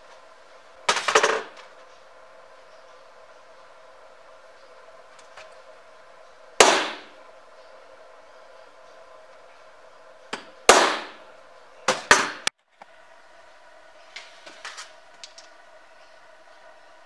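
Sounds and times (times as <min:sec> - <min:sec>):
steady hum: 0:00.0 - 0:17.0
punch striking metal: 0:06.6 - 0:07.1, 0:10.7 - 0:11.2.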